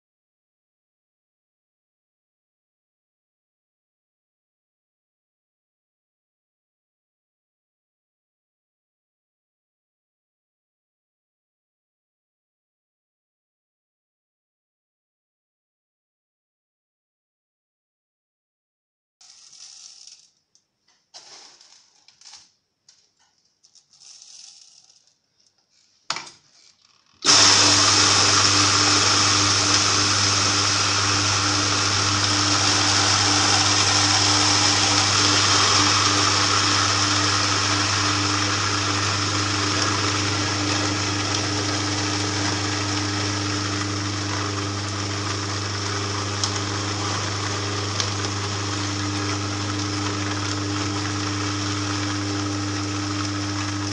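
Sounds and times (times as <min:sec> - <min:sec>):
juicer motor grinding: 0:27.2 - 0:53.9.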